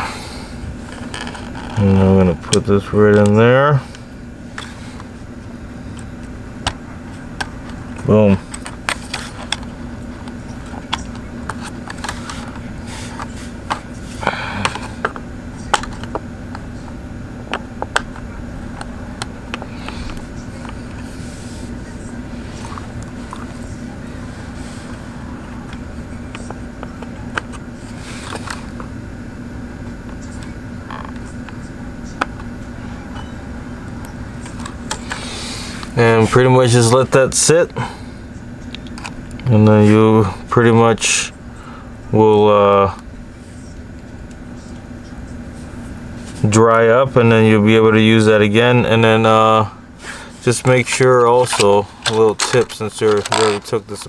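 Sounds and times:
low room hum: 0.0s - 54.0s
handling clicks and taps: 17.5s - 21.0s, 50.6s - 54.0s.

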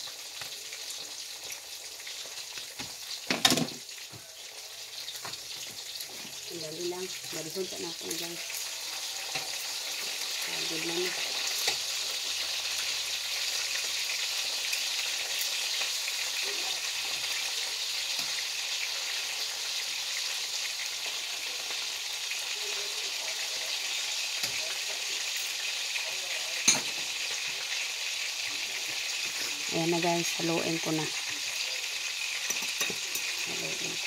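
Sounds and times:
oil sizzling in a wok: 0.0s - 34.0s
metal tongs turning food: 8.5s - 10.3s, 11.1s - 12.2s, 24.3s - 25.6s.

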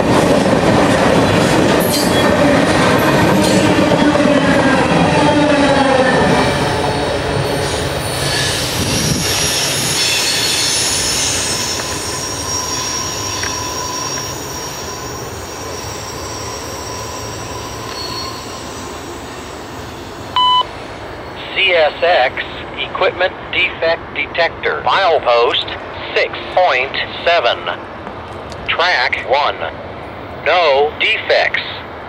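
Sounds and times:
train cars rumbling on rails: 0.0s - 32.0s
train wheels squealing: 1.8s - 2.4s, 5.2s - 20.4s.

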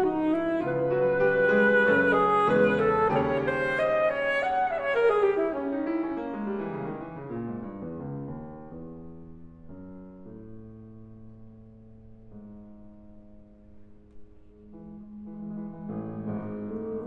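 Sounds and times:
alto saxophone: 0.0s - 7.0s, 14.8s - 17.0s
grand piano: 0.0s - 17.0s.

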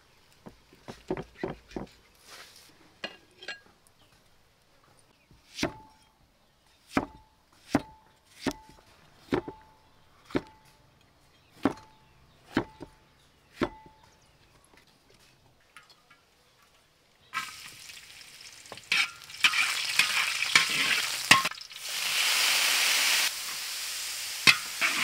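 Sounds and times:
cleaver chopping on wooden block: 6.9s - 8.7s.

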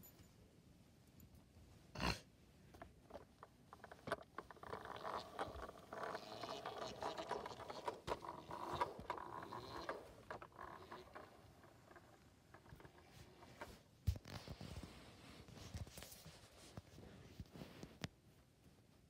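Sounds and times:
sharp clicks and rattles: 2.8s - 13.8s
objects scraping and rustling: 3.1s - 18.0s.

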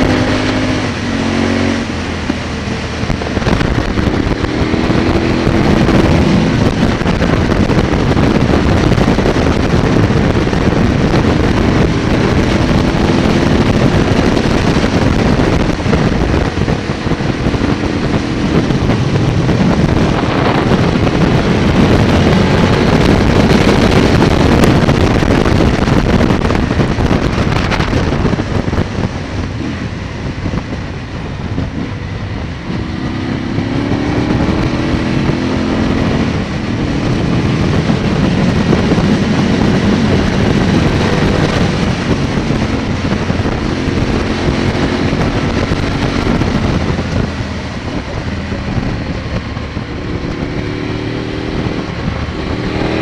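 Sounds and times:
motorcycle engine accelerating: 0.0s - 53.0s
wind noise on microphone: 0.0s - 53.0s.

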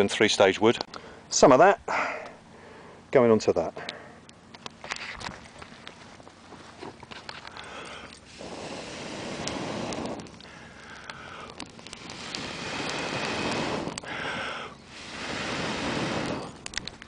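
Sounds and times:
air blowing over fire: 3.9s - 17.0s.

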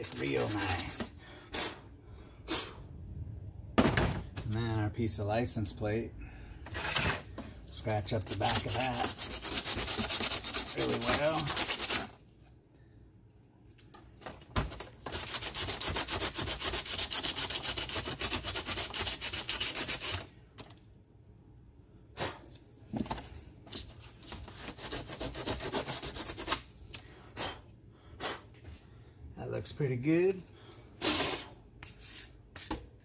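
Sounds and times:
sandpaper scraping metal: 0.0s - 1.1s, 7.9s - 12.1s, 15.1s - 20.2s, 24.6s - 26.6s.

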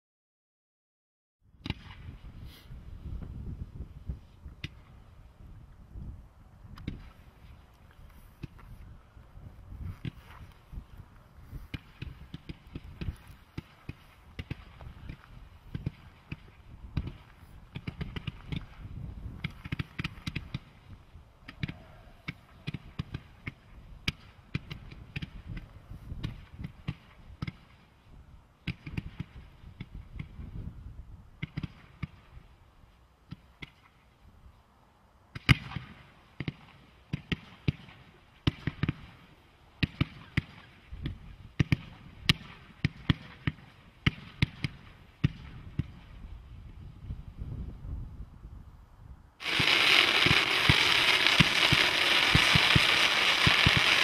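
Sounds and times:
firework cake pops and thuds: 11.7s - 18.7s, 19.3s - 20.7s, 49.4s - 54.0s
loud firework bang: 49.4s - 54.0s.

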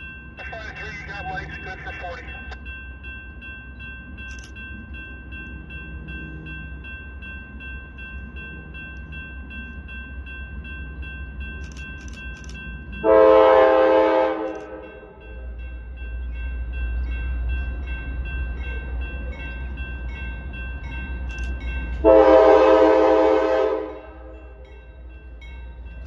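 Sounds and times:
high bell-like ringing: 0.0s - 13.4s
locomotive air horn blast: 13.0s - 14.8s, 22.0s - 24.3s.

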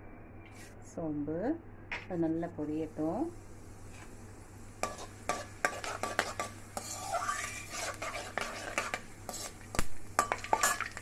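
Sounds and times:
seeds frying hiss: 2.8s - 11.0s
metal ladle scraping iron pan: 4.8s - 9.6s, 10.2s - 11.0s.

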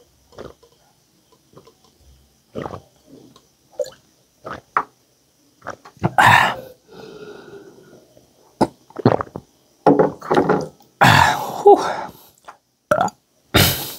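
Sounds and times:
man chewing noisily: 0.3s - 0.8s, 2.6s - 2.9s
man grunting: 11.0s - 12.1s.

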